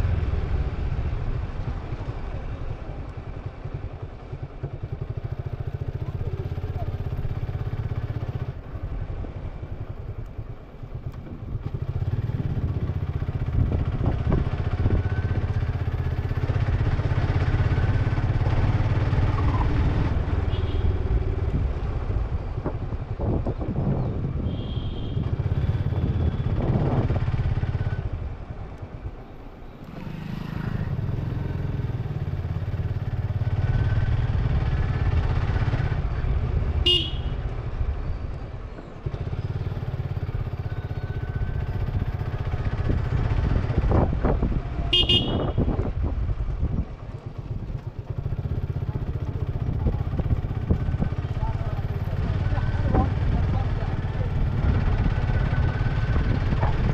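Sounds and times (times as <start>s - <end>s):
motorcycle engine under way: 0.0s - 23.9s, 25.2s - 29.2s, 29.8s - 56.9s
short horn toots: 36.9s - 37.4s, 44.9s - 45.7s.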